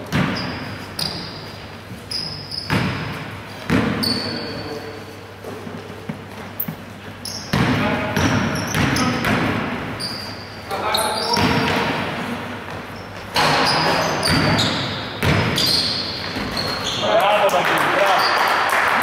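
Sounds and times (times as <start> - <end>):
basketball bouncing on wooden floor: 0.0 - 1.4, 2.6 - 4.4, 7.5 - 9.8, 11.3 - 12.0, 13.4 - 16.8
sneaker squeaks: 0.0 - 17.4, 18.0 - 18.7.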